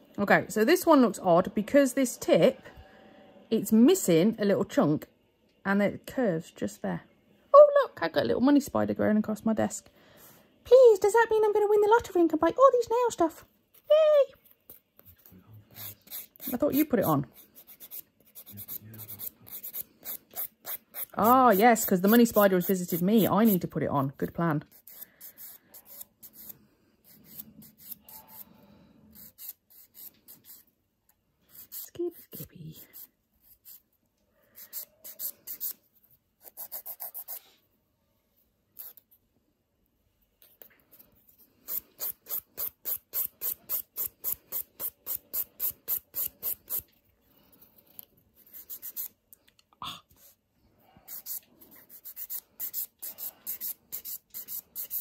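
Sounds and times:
nail file rasping on fingernail: 14.7 - 23.7, 24.6 - 28.5, 29.1 - 30.7, 31.5 - 33.8, 34.6 - 35.8, 36.4 - 37.4, 38.8 - 39.0, 40.4 - 46.9, 48.0 - 49.2, 51.1 - 55.0.

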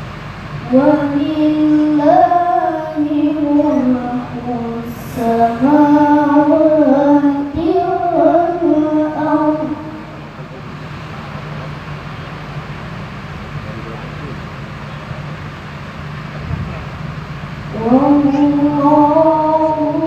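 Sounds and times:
boy reciting melodically: 0.6 - 10.3, 17.7 - 20.0.

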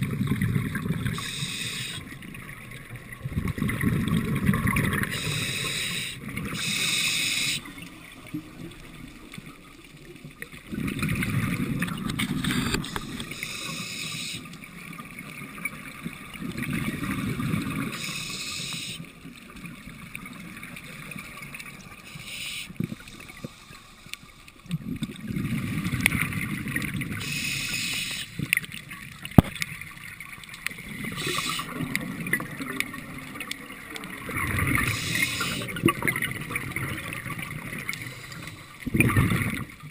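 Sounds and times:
gurgle of exhaled bubbles: 0.0 - 5.6, 7.7 - 13.6, 15.2 - 18.2, 24.7 - 27.4, 28.4 - 39.9
hissing inhale through regulator: 1.1 - 2.2, 5.1 - 7.8, 12.8 - 14.5, 17.9 - 19.1, 22.0 - 24.6, 27.2 - 28.5, 31.0 - 31.8, 34.8 - 35.8, 37.8 - 39.0.

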